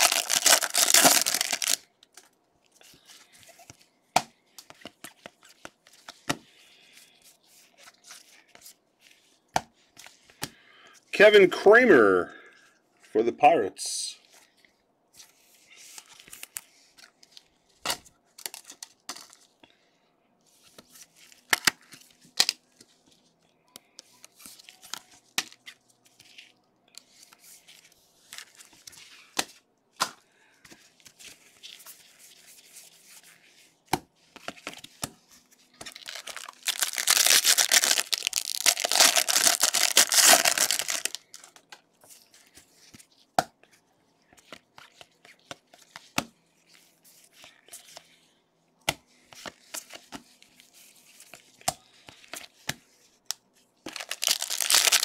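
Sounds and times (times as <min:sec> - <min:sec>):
wrapper tearing and crinkling: 0:00.0 - 0:01.9, 0:35.8 - 0:41.5, 0:53.9 - 0:55.0
handling cards and plastic sleeves: 0:00.0 - 0:19.7, 0:20.4 - 0:55.0.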